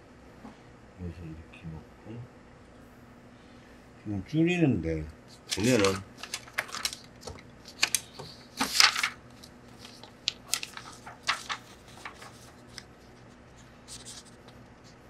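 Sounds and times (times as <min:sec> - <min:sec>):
photo paper rustling and crinkling: 0:05.3 - 0:15.0.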